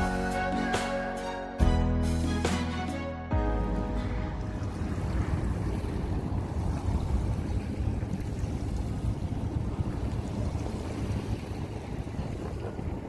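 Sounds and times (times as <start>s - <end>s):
wind buffeting microphone: 4.2s - 13.0s.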